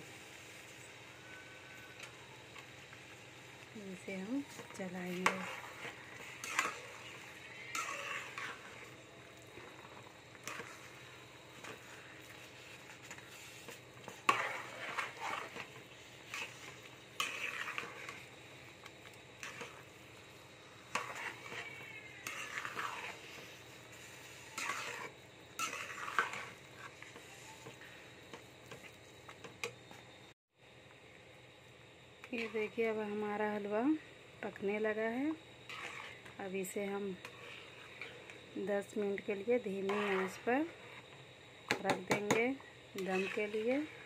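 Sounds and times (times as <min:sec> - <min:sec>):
metal spoon scraping a pan: 0:03.9 - 0:18.4, 0:19.0 - 0:20.0, 0:20.6 - 0:28.9, 0:32.4 - 0:32.8, 0:35.3 - 0:41.1, 0:41.7 - 0:44.0.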